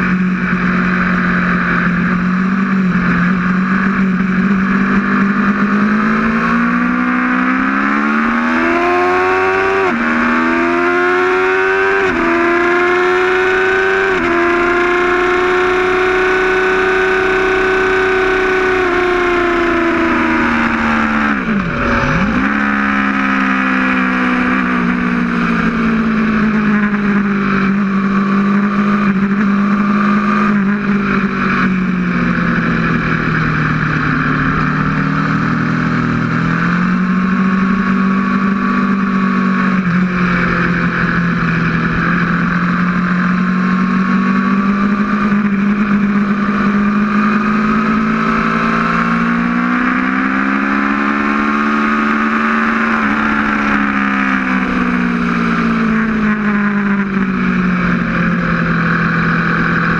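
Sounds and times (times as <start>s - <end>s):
motorcycle engine running hard: 0.0s - 59.9s
wind rush: 20.1s - 24.8s.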